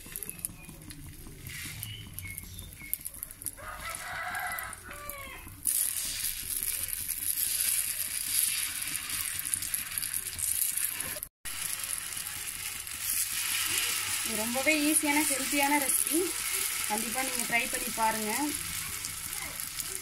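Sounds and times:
batter sizzling on a hot pan: 0:00.0 - 0:20.0
rooster crowing: 0:03.5 - 0:05.5.

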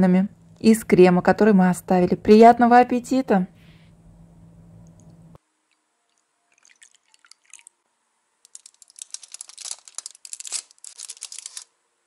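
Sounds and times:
foil liner crinkling: 0:08.5 - 0:11.7.

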